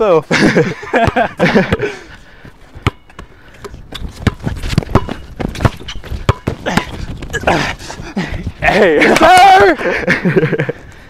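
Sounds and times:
basketball bouncing on court: 0:00.9 - 0:01.9, 0:02.8 - 0:07.4
sneaker footsteps scuffing: 0:03.9 - 0:07.3.

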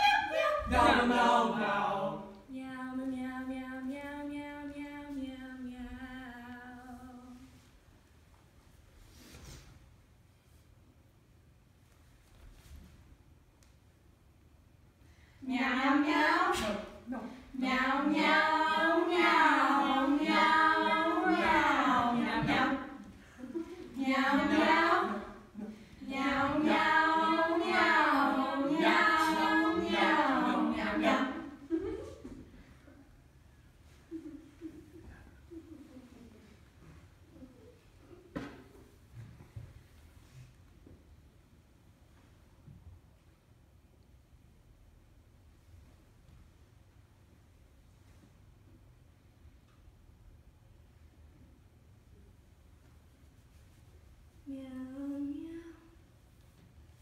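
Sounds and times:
girls choir singing a cappella: 0:00.0 - 0:07.6, 0:15.4 - 0:32.3.

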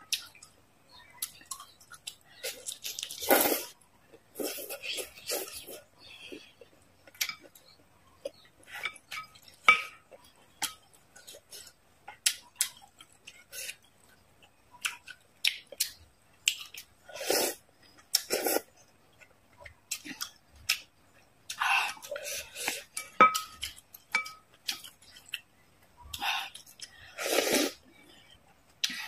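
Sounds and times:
chewing with wet mouth clicks: 0:06.6 - 0:17.0.

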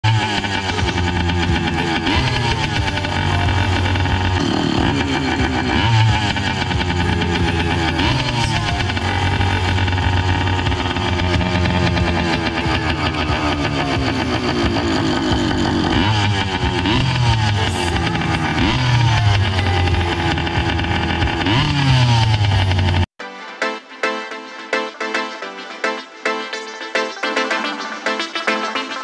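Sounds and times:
two-stroke engine idling and revving: 0:00.0 - 0:23.1.

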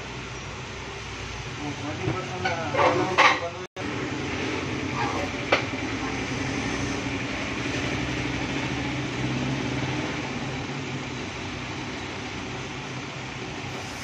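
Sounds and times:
steady mechanical hum: 0:00.0 - 0:14.0.

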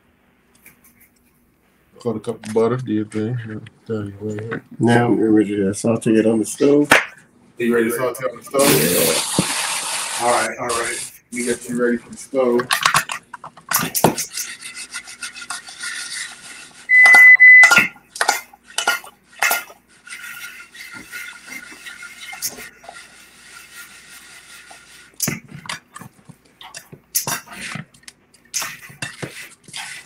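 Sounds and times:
electronic beep: 0:16.9 - 0:17.7
pots and pans clattering: 0:17.0 - 0:23.0.

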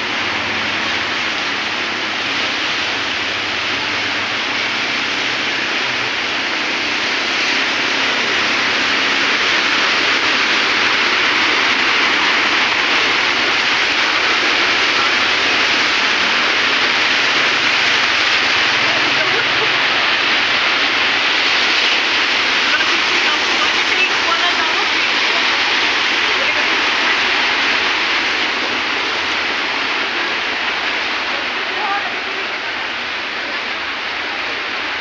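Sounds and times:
heavy downpour: 0:00.0 - 0:35.0
rushing floodwater: 0:00.0 - 0:35.0.

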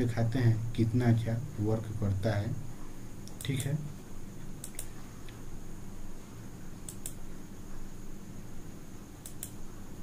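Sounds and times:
steady low hum: 0:00.0 - 0:10.0
computer mouse double-clicks: 0:04.6 - 0:04.9, 0:06.9 - 0:07.2, 0:09.2 - 0:09.6.

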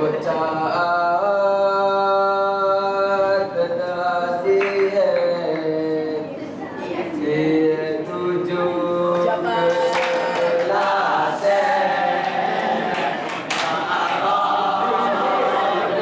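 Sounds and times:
hands clapping: 0:04.6 - 0:05.7, 0:09.7 - 0:11.0, 0:12.2 - 0:14.3
chorus of boys singing: 0:07.2 - 0:16.0.

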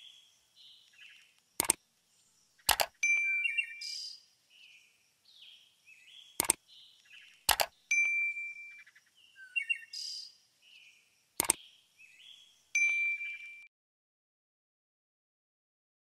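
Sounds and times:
bird-like chirps: 0:00.0 - 0:13.7
sharp clicks: 0:00.8 - 0:01.8, 0:02.6 - 0:03.3, 0:06.4 - 0:08.2, 0:11.4 - 0:11.6
bell-like ding: 0:03.0 - 0:03.5, 0:07.9 - 0:08.8, 0:12.8 - 0:13.7.

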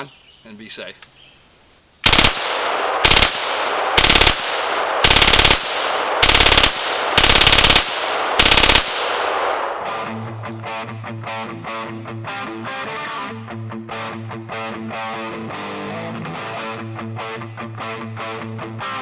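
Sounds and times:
machine gun bursts: 0:02.0 - 0:02.4, 0:03.0 - 0:09.2
ringing gunshot echo: 0:02.0 - 0:10.4.

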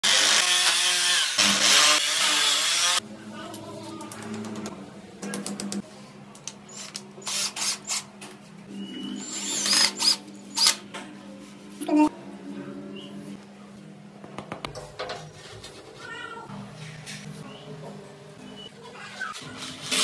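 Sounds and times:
power drill boring into tile: 0:00.0 - 0:03.0.

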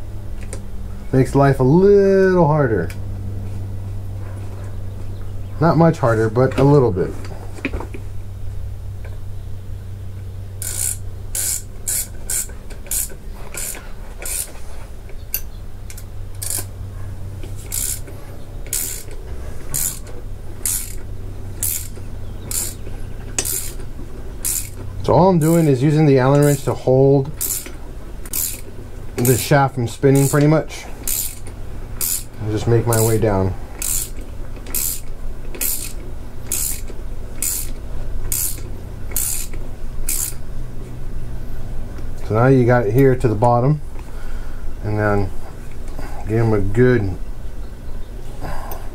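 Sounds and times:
ratchet wrench clicking: 0:10.6 - 0:14.6, 0:15.3 - 0:16.7, 0:17.6 - 0:24.8, 0:25.4 - 0:26.7, 0:27.4 - 0:29.5, 0:30.1 - 0:33.2, 0:33.8 - 0:40.4.

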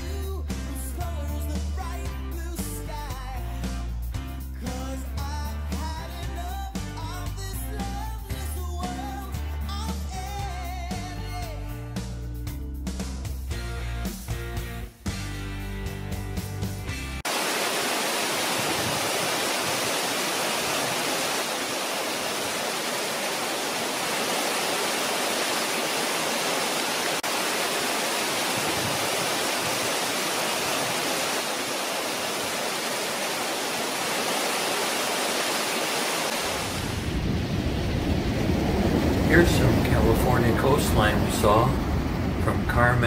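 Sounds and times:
waterfall rushing: 0:17.2 - 0:43.0
low rumble: 0:36.8 - 0:43.0.

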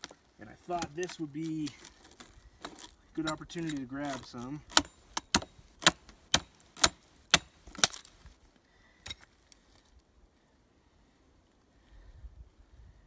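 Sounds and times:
hatchet chopping wood: 0:02.6 - 0:08.1.

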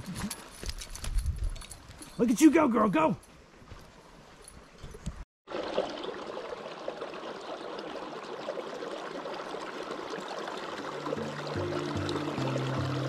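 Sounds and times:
creek trickling and gurgling: 0:05.5 - 0:13.0.

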